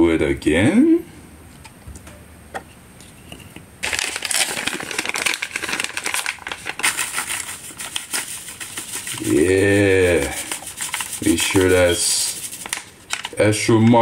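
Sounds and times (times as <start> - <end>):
paper packet clicks: 3.8 - 8.9, 12.6 - 13.4
paper packet crackling rustle: 3.8 - 14.0.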